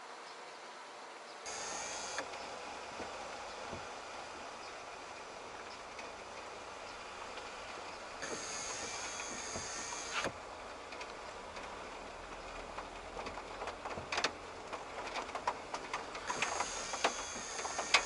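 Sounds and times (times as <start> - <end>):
heavy rain hissing on a car: 0.8 - 18.0
thin high whine: 1.4 - 3.8, 7.7 - 10.3, 16.3 - 18.0
raindrop ticks on car roof: 10.8 - 18.0.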